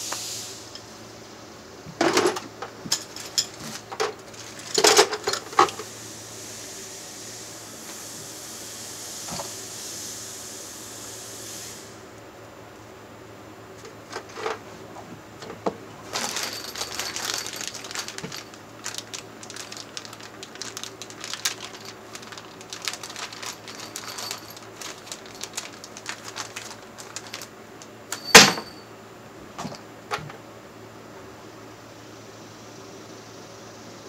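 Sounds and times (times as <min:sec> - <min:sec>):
tools and fittings rattling: 0:02.0 - 0:05.8, 0:13.8 - 0:14.7, 0:15.4 - 0:27.5, 0:28.1 - 0:28.8.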